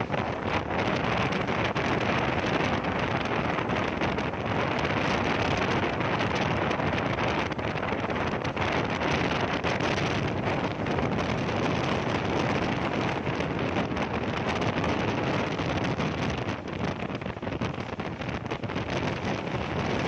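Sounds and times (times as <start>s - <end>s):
train running noise: 0.0s - 20.0s
wind rushing over microphone: 0.0s - 20.0s.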